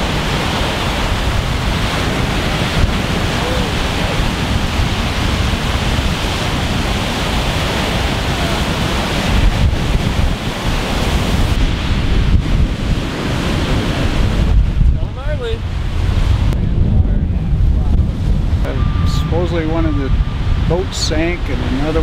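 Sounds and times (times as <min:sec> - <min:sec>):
waves breaking on rocky shore: 0:00.0 - 0:16.6
wind buffeting microphone: 0:00.0 - 0:22.0.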